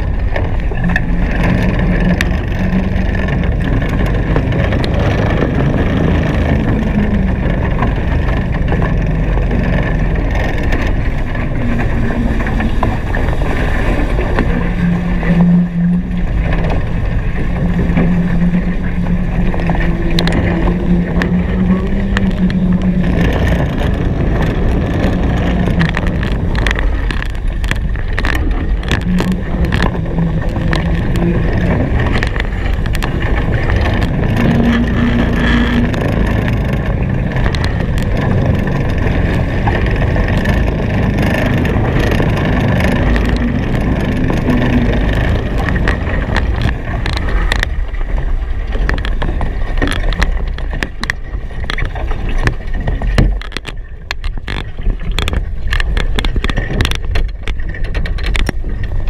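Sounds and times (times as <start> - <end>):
low steady hum: 0.0 - 59.0
water rushing past boat: 0.0 - 59.0
wind buffeting microphone: 0.0 - 59.0.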